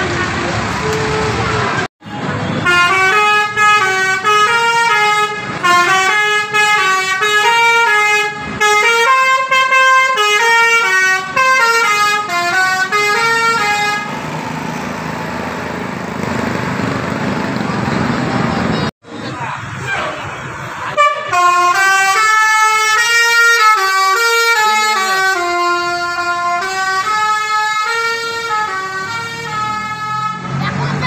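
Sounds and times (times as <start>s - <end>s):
traffic noise: 0.0s - 31.0s
bus horn playing a melody: 0.3s - 14.2s, 21.0s - 30.5s.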